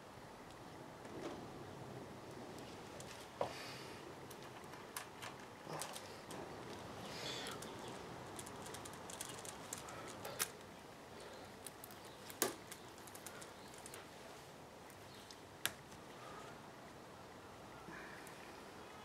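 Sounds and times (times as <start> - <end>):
soft rustling of gloved hands: 2.3 - 17.0.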